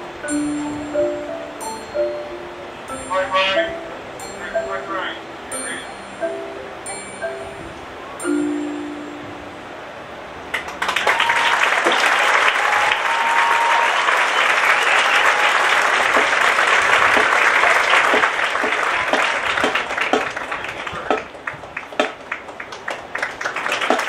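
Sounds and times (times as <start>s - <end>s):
audience applauding: 10.5s - 24.0s.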